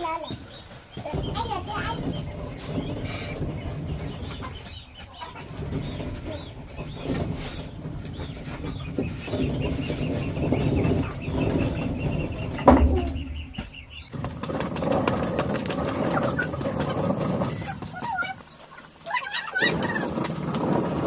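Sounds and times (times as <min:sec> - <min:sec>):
stick scraping dry soil: 0:14.1 - 0:21.0.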